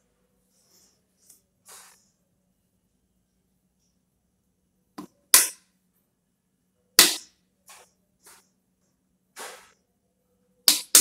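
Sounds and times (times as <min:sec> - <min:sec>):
sharp cracks and knocks: 0:10.7 - 0:11.0.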